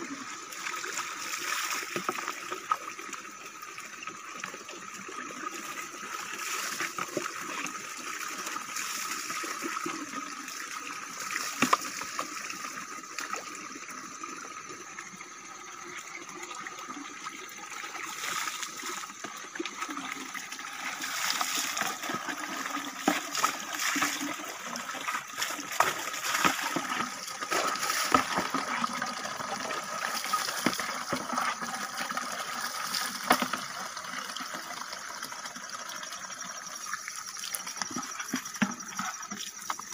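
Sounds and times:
water pouring onto ground: 0.0s - 3.4s, 4.3s - 14.0s, 16.9s - 39.9s
water splashes from dipper: 18.0s - 34.5s.

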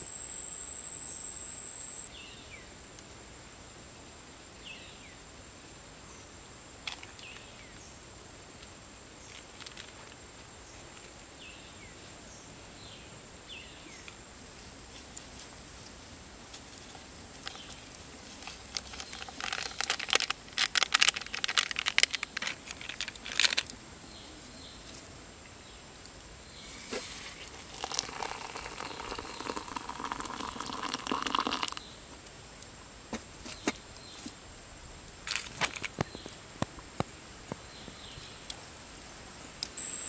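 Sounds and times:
plastic sachet crinkling: 18.4s - 23.7s, 27.2s - 31.8s
hot water pouring into mug: 26.9s - 31.8s.

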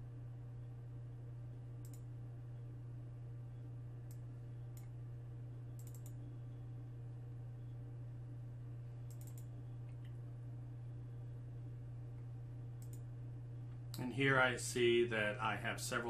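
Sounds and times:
low electrical hum: 0.0s - 16.0s
computer mouse clicks: 1.8s - 2.1s, 5.8s - 6.2s, 9.1s - 10.2s, 12.8s - 13.0s.

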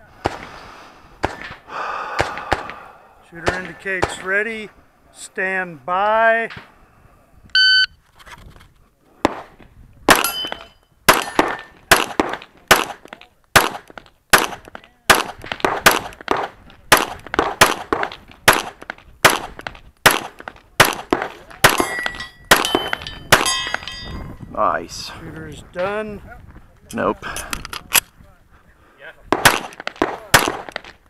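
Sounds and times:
pistol shots: 1.2s - 2.8s, 9.2s - 23.8s, 29.3s - 31.0s
steel targets clanging: 10.2s - 11.8s, 21.7s - 24.4s.

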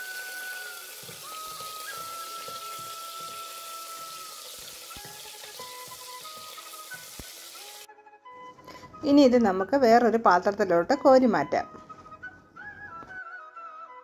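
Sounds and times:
nuts sizzling in hot fat: 0.0s - 7.9s
soft background music: 0.0s - 14.0s
wooden spoon stirring: 1.0s - 7.2s.

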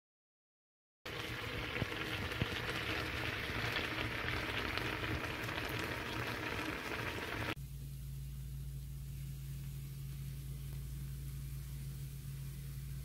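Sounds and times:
stew bubbling with crackly hiss: 1.1s - 7.6s
low steady hum: 1.1s - 13.0s.

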